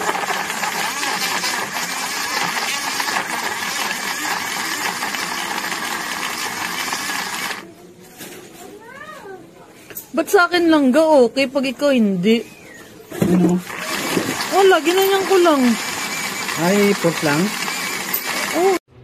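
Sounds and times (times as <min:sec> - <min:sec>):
blender motor whirring: 0:00.0 - 0:07.6, 0:13.2 - 0:18.8.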